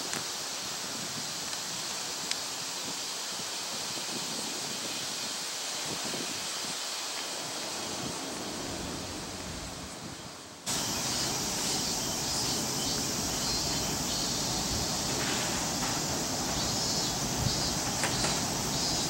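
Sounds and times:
rustling leaves: 0.0s - 19.0s
wind: 0.0s - 19.0s
electric train wheels rumbling: 6.0s - 19.0s.

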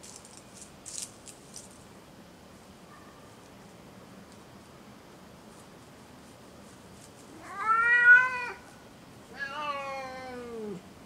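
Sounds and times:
cat meowing: 7.4s - 8.6s, 9.4s - 10.8s.

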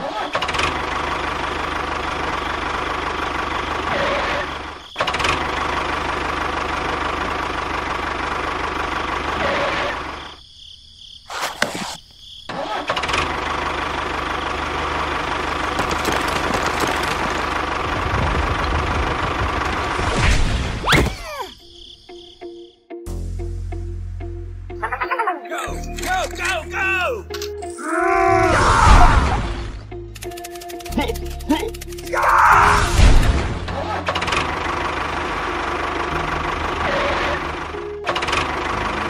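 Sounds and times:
tractor engine running: 0.3s - 10.3s, 12.5s - 20.1s, 29.7s - 32.3s, 33.1s - 39.0s.

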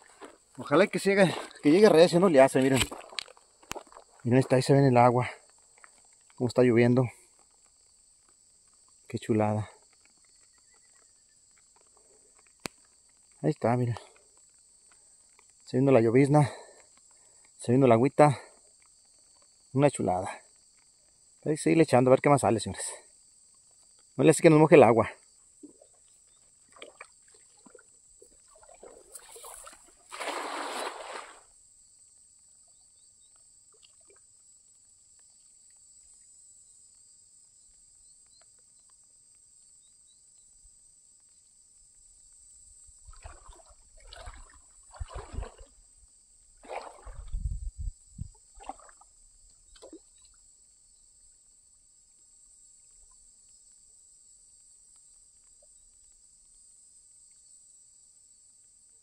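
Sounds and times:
water sloshing and dripping: 0.0s - 4.3s, 25.6s - 31.5s, 42.9s - 47.5s, 48.3s - 50.4s
crickets chirring: 0.0s - 59.0s
net splashing into water: 26.6s - 31.5s, 43.0s - 45.8s, 46.5s - 47.4s, 48.4s - 50.3s.

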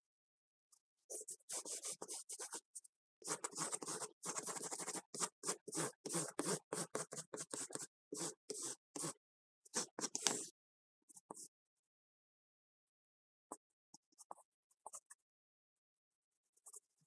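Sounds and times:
pencil strokes on paper: 1.1s - 2.6s, 3.2s - 10.5s.

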